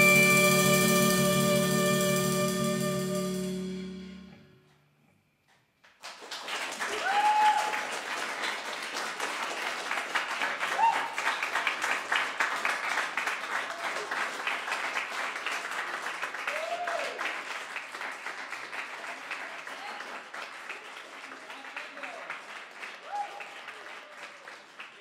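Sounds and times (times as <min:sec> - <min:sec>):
band holding a chord: 0:00.0 - 0:04.6
audience applause: 0:06.0 - 0:25.0.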